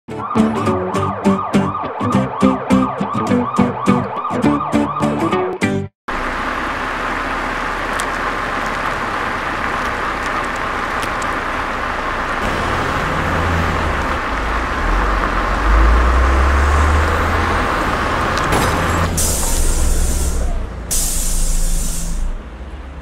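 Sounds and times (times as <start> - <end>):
vehicle road noise: 0.1 - 23.0
deep engine rumble: 6.1 - 23.0.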